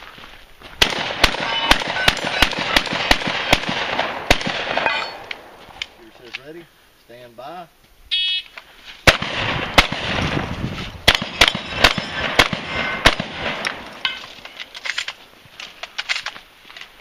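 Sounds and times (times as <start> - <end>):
shotgun shots: 0.8 - 5.6, 9.0 - 14.0.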